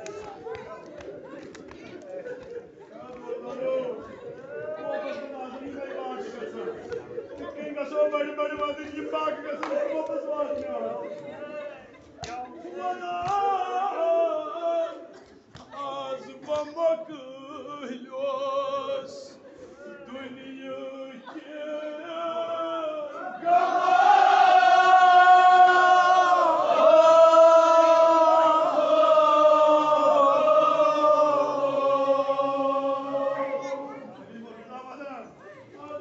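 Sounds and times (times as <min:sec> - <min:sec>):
men chanting: 0:15.8 - 0:34.1.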